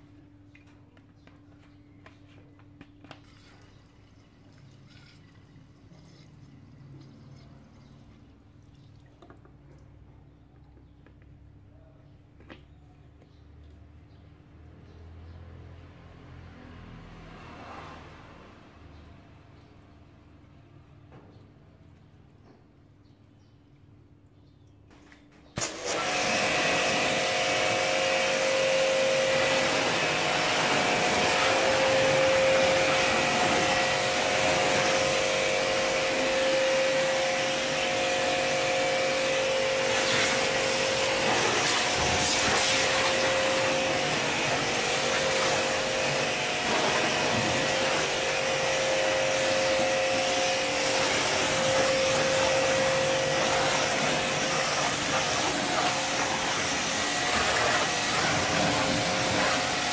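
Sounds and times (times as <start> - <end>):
pressure washer motor hum: 25.6 - 59.9
spray hissing: 29.3 - 59.9.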